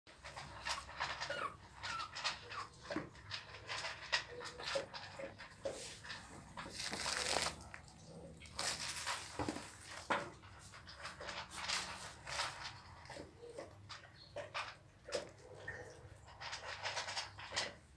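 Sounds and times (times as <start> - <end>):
puppies squeaking and whimpering: 0.2 - 5.3
towel rustling: 6.8 - 7.6.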